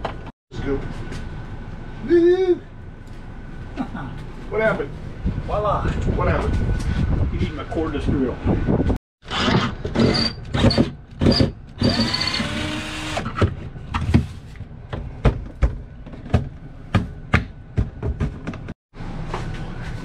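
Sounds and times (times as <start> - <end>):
refrigerator knocking and scraping: 13.4 - 18.8.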